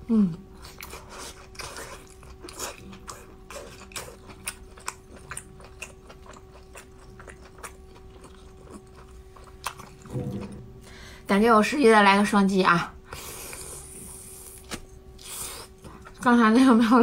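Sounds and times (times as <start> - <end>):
faint steady hum: 0.0 - 17.0
chewing with mouth clicks: 0.5 - 10.1.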